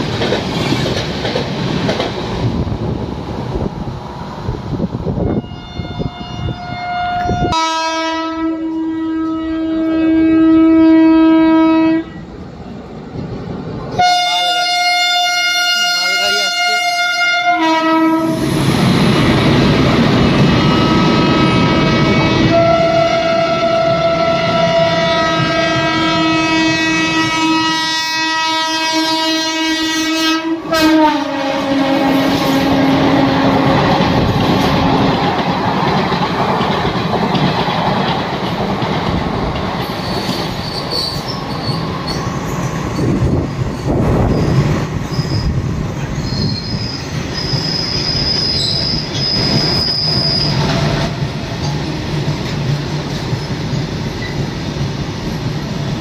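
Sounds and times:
train wheels rumbling and clattering: 0:00.0 - 0:05.3, 0:17.6 - 0:27.9, 0:30.6 - 0:56.0
locomotive horn: 0:05.2 - 0:12.2, 0:14.0 - 0:18.4, 0:20.5 - 0:34.0
high wheel squeal: 0:40.0 - 0:43.2, 0:44.3 - 0:50.8.

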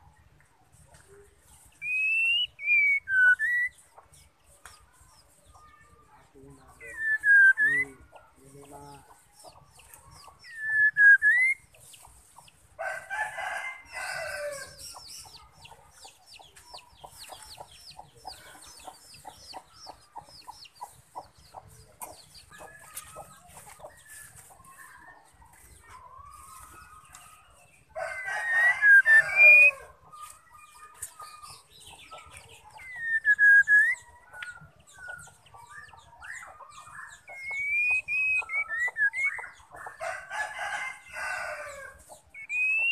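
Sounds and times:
fast ticking bird calls: 0:01.8 - 0:04.3, 0:30.4 - 0:40.0, 0:42.2 - 0:42.9
rooster crowing: 0:12.8 - 0:14.8, 0:28.0 - 0:30.0, 0:40.0 - 0:42.0.

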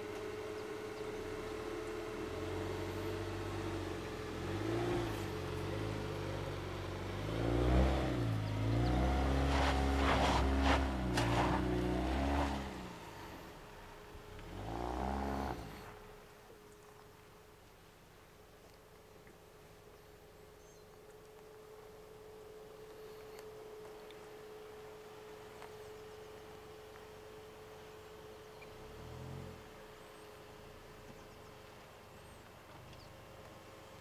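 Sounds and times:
car engine revving: 0:00.0 - 0:16.3, 0:28.6 - 0:30.1
tyres scrabbling in sand: 0:08.7 - 0:13.7.

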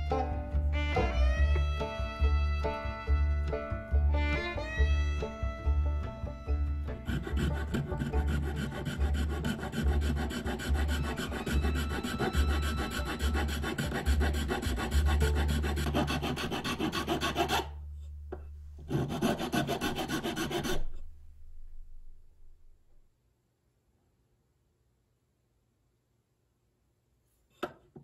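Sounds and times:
metal file rasping on wood: 0:07.0 - 0:17.8, 0:18.8 - 0:21.1.

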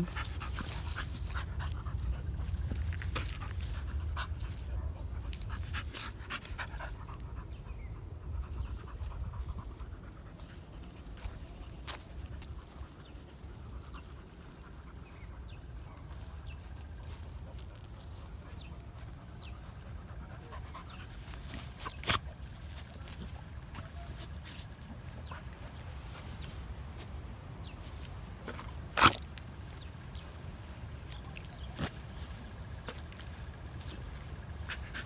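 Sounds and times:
rustling in grass: 0:00.0 - 0:07.2, 0:08.4 - 0:35.0
steady low rumble: 0:00.0 - 0:35.0
dog panting: 0:17.4 - 0:26.4, 0:31.2 - 0:35.0.

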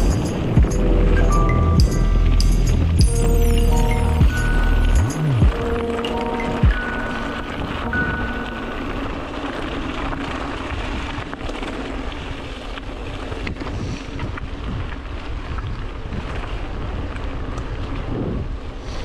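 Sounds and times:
stones and bike rattling: 0:00.0 - 0:01.0, 0:05.4 - 0:19.0
wind buffeting microphone: 0:00.0 - 0:03.1, 0:05.1 - 0:19.0
bike tyres rolling over gravel: 0:00.0 - 0:19.0.

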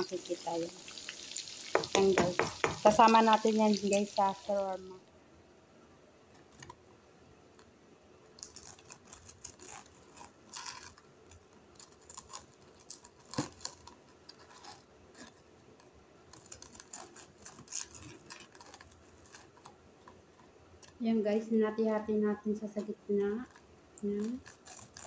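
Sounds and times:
knife tapping cutting board: 0:01.7 - 0:03.2
crunching of crispy crust: 0:08.4 - 0:20.2, 0:23.5 - 0:25.0.

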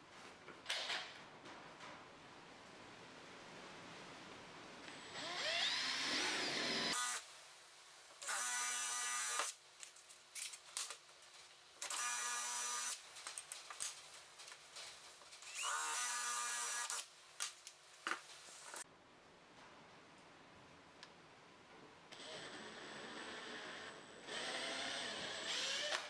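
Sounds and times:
cordless drill boring into wood: 0:05.2 - 0:07.2, 0:15.5 - 0:17.0, 0:22.2 - 0:26.0.

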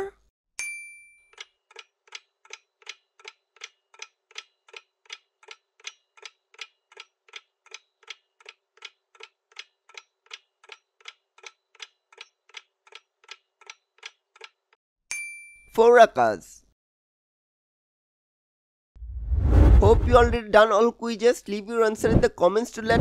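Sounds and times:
clock-like timer ticking: 0:01.3 - 0:14.6.

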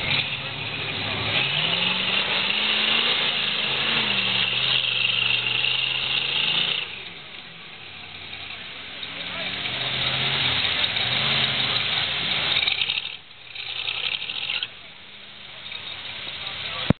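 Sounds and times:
engine revving hard: 0:00.0 - 0:07.1, 0:09.1 - 0:14.7
tyres spinning in mud: 0:00.0 - 0:14.9.

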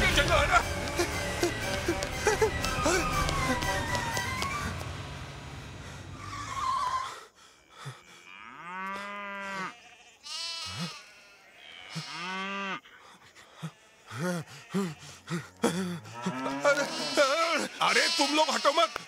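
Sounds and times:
background music: 0:00.0 - 0:06.1
cattle mooing: 0:08.1 - 0:12.8, 0:16.1 - 0:18.4.

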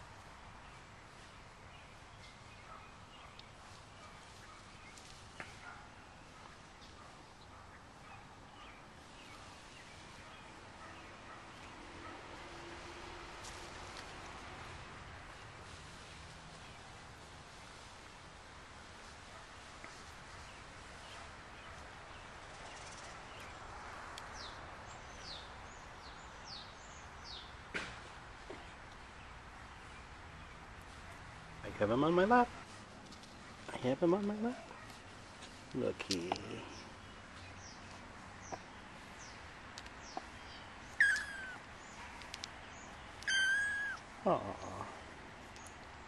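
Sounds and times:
outdoor background hiss: 0:00.0 - 0:46.0
small bird chirping: 0:36.2 - 0:45.8
kitten mewing: 0:41.0 - 0:41.7, 0:43.2 - 0:44.6.

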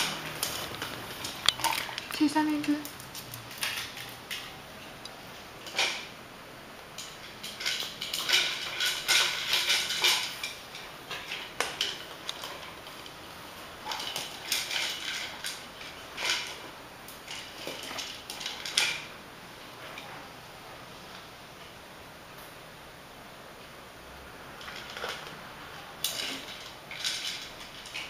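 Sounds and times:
plastic toy clattering on tiles: 0:00.0 - 0:04.6, 0:05.6 - 0:06.1, 0:07.0 - 0:13.2, 0:13.8 - 0:19.1, 0:24.6 - 0:25.4, 0:26.0 - 0:28.0.

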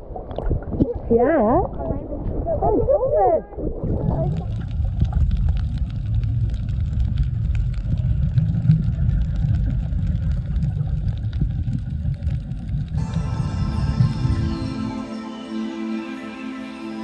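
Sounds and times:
muffled underwater rumble: 0:00.0 - 0:14.7
faint crackling clicks: 0:04.3 - 0:13.0
music: 0:13.0 - 0:17.0.

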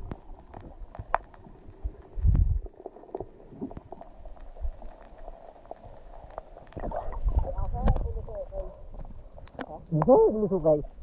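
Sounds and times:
underwater low rumble: 0:00.0 - 0:11.0
underwater clicks and knocks: 0:06.7 - 0:08.1.

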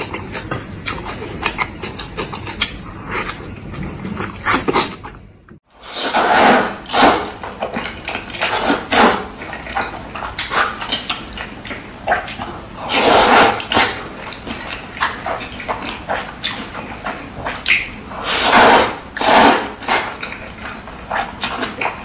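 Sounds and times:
chewing and mouth smacks: 0:00.0 - 0:05.6, 0:07.4 - 0:08.6, 0:09.4 - 0:13.0, 0:13.6 - 0:18.4, 0:19.8 - 0:22.0
slurping noodles: 0:05.8 - 0:07.4, 0:08.0 - 0:22.0.

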